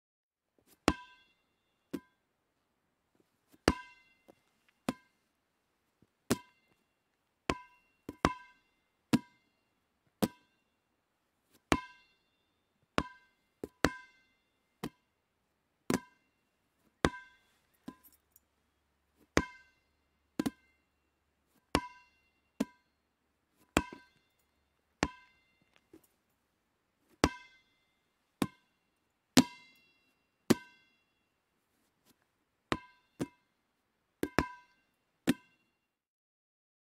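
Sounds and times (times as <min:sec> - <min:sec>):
rubber ball bouncing with ping: 0:00.9 - 0:01.3, 0:01.9 - 0:02.2, 0:03.6 - 0:04.1, 0:04.9 - 0:05.1, 0:06.3 - 0:06.7, 0:07.5 - 0:09.4, 0:10.2 - 0:10.5, 0:11.7 - 0:12.2, 0:13.0 - 0:14.2, 0:15.9 - 0:16.2, 0:17.0 - 0:18.0, 0:19.3 - 0:19.8, 0:20.4 - 0:20.7, 0:21.7 - 0:22.9, 0:23.7 - 0:24.2, 0:25.0 - 0:25.6, 0:27.2 - 0:27.6, 0:28.4 - 0:28.7, 0:29.4 - 0:31.0, 0:32.7 - 0:33.5, 0:34.2 - 0:35.6.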